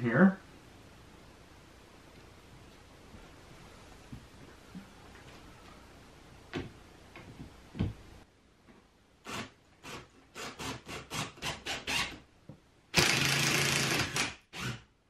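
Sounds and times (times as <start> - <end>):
drill driving a screw: 9.2 - 12.2, 12.9 - 14.9
drill clicking: 13.0 - 14.8.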